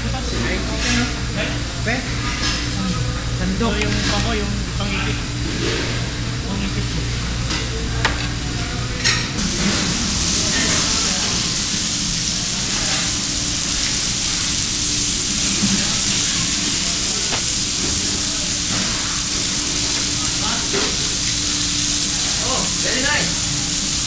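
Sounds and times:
steaks sizzling on a grill: 0:09.4 - 0:24.0.

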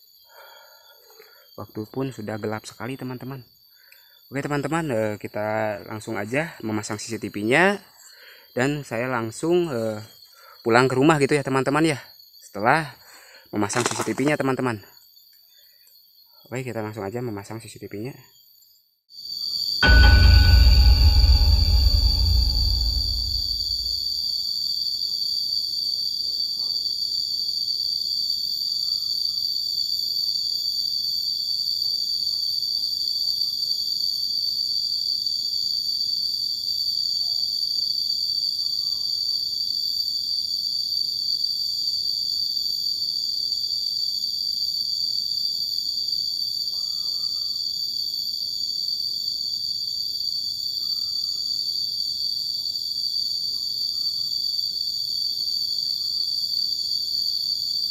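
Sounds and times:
insects droning: 0:00.0 - 0:21.2, 0:38.0 - 0:57.9.

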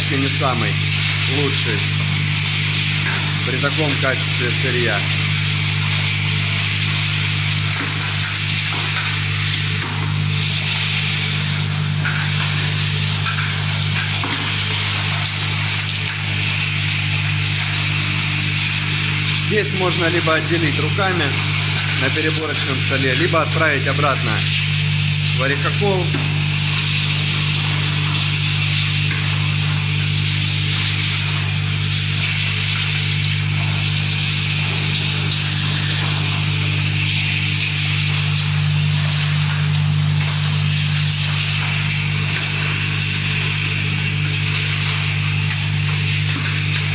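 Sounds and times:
steady motor hum: 0:00.0 - 0:46.9.

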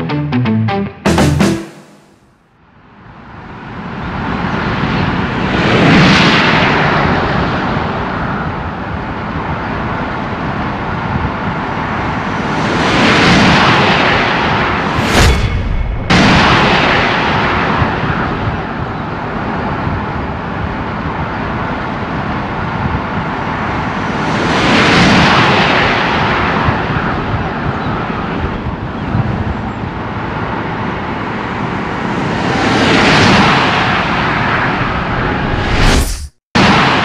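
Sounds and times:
heavy wind rush: 0:03.3 - 0:37.0
road noise: 0:29.3 - 0:36.3.

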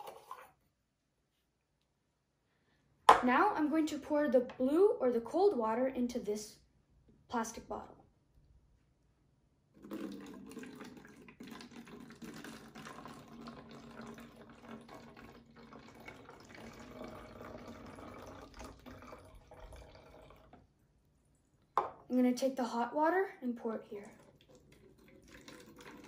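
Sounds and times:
water pouring into plastic bottle: 0:09.7 - 0:20.7, 0:24.0 - 0:26.0.

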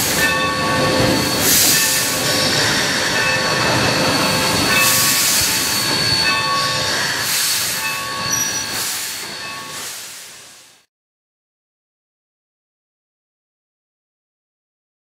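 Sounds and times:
wheel flanges squealing: 0:00.0 - 0:09.8
steam hiss: 0:00.0 - 0:10.9
train running noise: 0:00.0 - 0:10.9.

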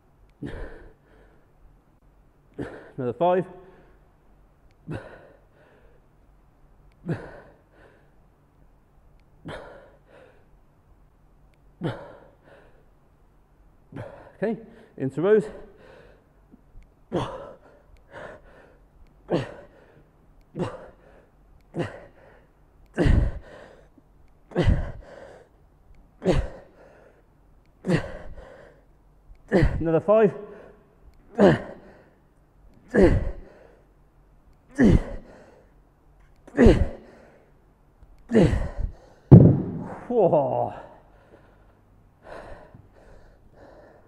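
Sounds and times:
man breathing heavily: 0:00.4 - 0:01.6, 0:02.5 - 0:03.0, 0:04.8 - 0:06.2, 0:07.0 - 0:08.4, 0:09.4 - 0:10.7, 0:11.8 - 0:13.0, 0:13.9 - 0:25.6, 0:26.2 - 0:32.3, 0:32.9 - 0:34.0, 0:34.7 - 0:35.8, 0:36.4 - 0:37.6, 0:38.2 - 0:44.0
man grunting: 0:31.3 - 0:31.8, 0:34.7 - 0:35.2, 0:36.5 - 0:37.0, 0:39.8 - 0:41.0
man exhaling forcefully with grunts: 0:39.6 - 0:41.0.

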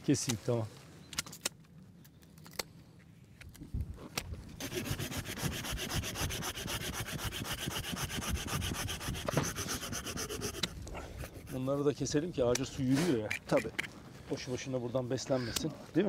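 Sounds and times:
hand saw rasping through wood: 0:04.6 - 0:11.8.

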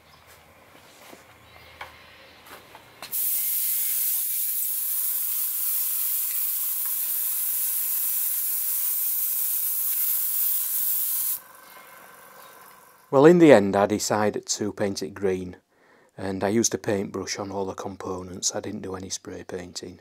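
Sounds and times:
airbrush spraying hiss: 0:03.1 - 0:12.7.

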